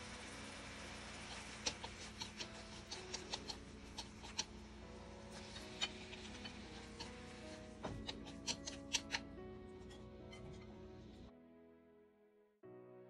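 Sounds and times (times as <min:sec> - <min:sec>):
faint background music: 0:00.0 - 0:13.0
food clicking and popping in pan: 0:01.0 - 0:04.5, 0:07.9 - 0:09.3.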